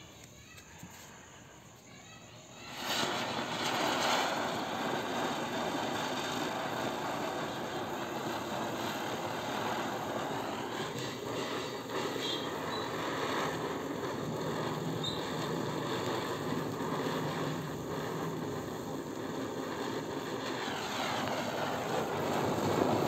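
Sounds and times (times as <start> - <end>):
spinning firework hissing: 0.0 - 23.0.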